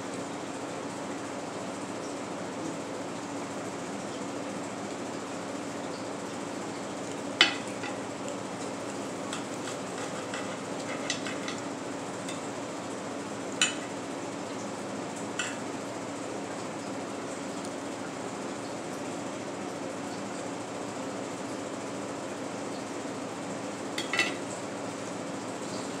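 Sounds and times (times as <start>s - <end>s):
knife and fork clinking on a plate: 7.4s - 8.0s, 9.3s - 12.5s, 13.6s - 14.0s, 15.4s - 15.6s, 24.0s - 24.5s.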